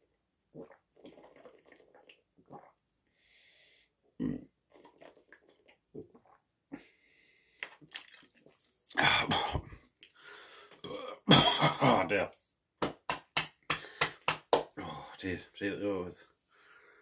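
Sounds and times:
person gulping: 0:00.5 - 0:02.8, 0:04.2 - 0:06.5, 0:07.6 - 0:12.0.

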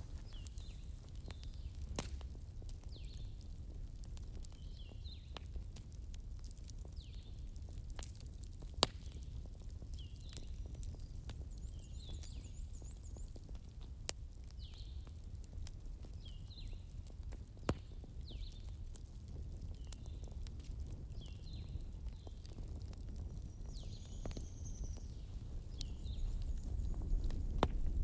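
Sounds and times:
campfire crackling and popping: 0:00.0 - 0:28.0.

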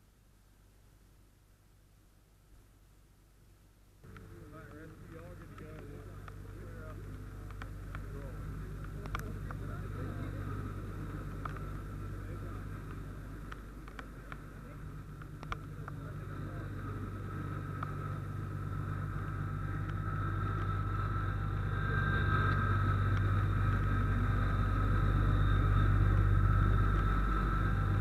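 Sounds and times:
high whine: 0:03.9 - 0:28.0
large engine humming: 0:04.0 - 0:28.0
light clicks: 0:12.8 - 0:16.9.

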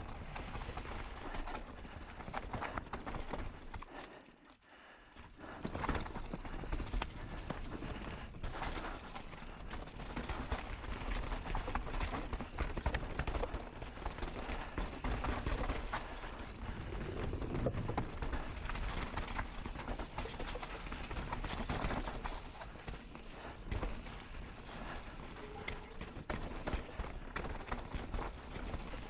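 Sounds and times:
bike tyres crunching over dirt: 0:00.0 - 0:04.3, 0:05.2 - 0:29.0
bike clattering and rattling: 0:00.0 - 0:29.0.

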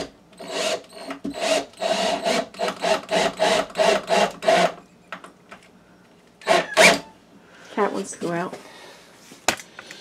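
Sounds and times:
drill driving screw into drywall: 0:00.0 - 0:04.8, 0:06.4 - 0:07.1.

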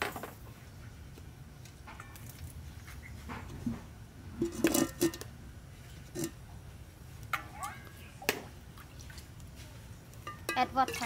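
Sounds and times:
wood fire crackling: 0:00.0 - 0:11.0
metal pot clanking on stove: 0:04.4 - 0:05.3, 0:10.2 - 0:11.0.

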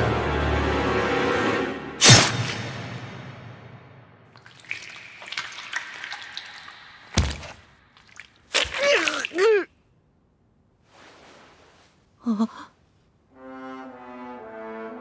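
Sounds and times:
sharp thud: 0:02.0 - 0:03.5
wet squelches: 0:04.3 - 0:09.8.

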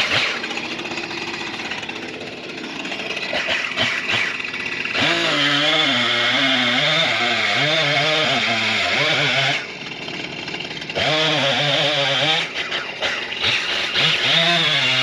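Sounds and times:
chainsaw cutting wood: 0:00.0 - 0:15.0.

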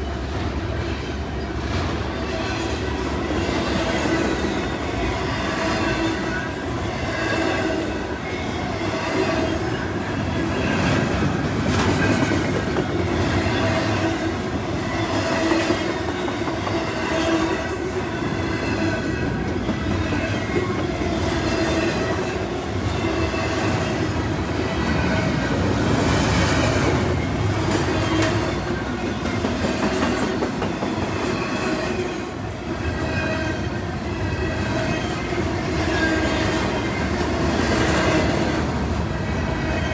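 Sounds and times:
train rumble: 0:00.0 - 0:39.9
train wheels clicking over rail joints: 0:10.3 - 0:14.0, 0:24.8 - 0:31.8.

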